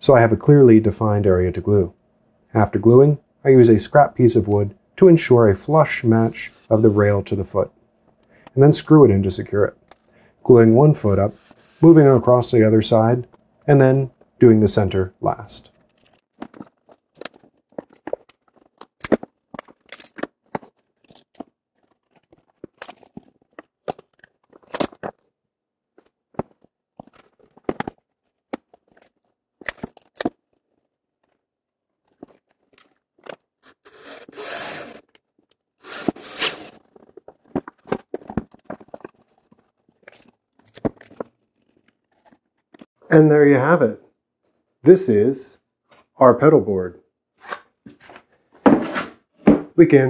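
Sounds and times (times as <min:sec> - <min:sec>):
cordless drill driving screws: 0:33.7 - 0:35.0, 0:35.8 - 0:36.8.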